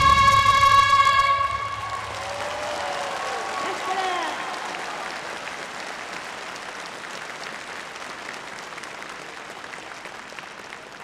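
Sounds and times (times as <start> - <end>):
audience applauding: 0.0 - 11.0.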